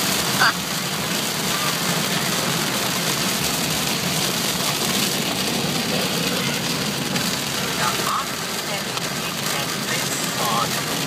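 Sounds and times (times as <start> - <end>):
car engine: 0.0 - 11.0
heavy rain on car roof: 0.0 - 11.0
tyres on wet road: 0.0 - 11.0.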